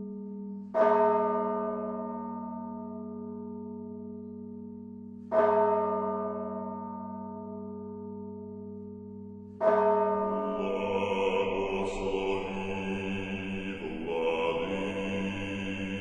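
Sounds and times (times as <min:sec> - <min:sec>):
church bell ringing: 0:00.0 - 0:16.0
men's choir chanting: 0:10.5 - 0:16.0.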